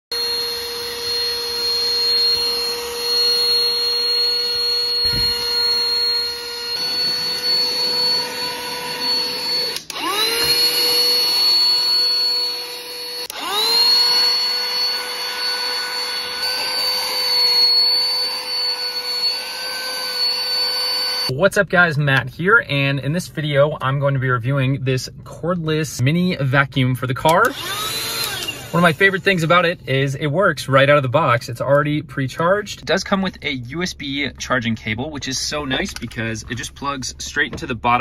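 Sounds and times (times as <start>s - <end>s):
handheld vacuum motor whining: 0.1s - 21.3s, 27.4s - 29.5s.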